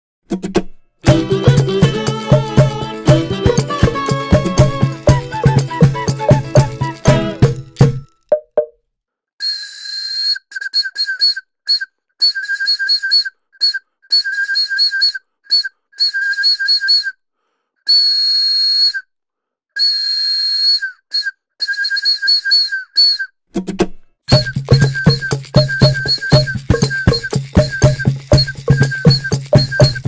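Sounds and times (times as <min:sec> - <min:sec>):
music: 0:00.3 - 0:08.1, 0:23.6 - 0:30.0
wooden toy whistle toots: 0:01.0 - 0:08.2, 0:09.4 - 0:17.2, 0:17.9 - 0:19.1, 0:19.8 - 0:23.4, 0:24.3 - 0:30.0.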